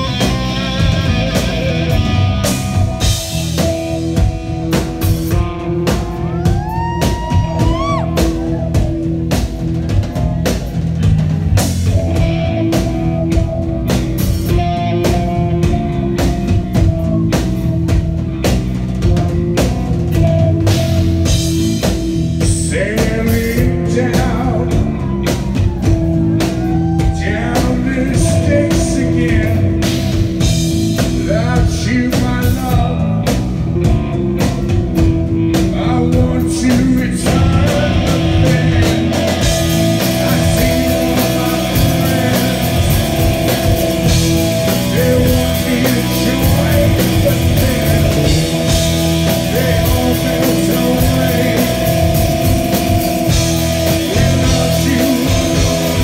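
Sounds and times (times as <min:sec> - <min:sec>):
rock band playing: 0:00.0 - 0:56.0
man singing: 0:05.9 - 0:09.1, 0:22.3 - 0:33.4, 0:35.4 - 0:56.0.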